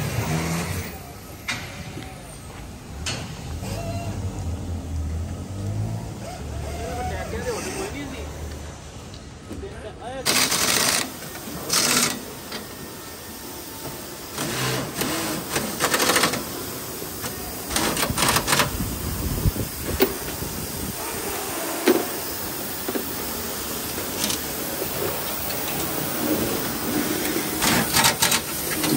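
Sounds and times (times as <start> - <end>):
factory machinery rattling: 0.0 - 5.5, 10.0 - 28.9
short bursts of hiss: 10.3 - 28.9.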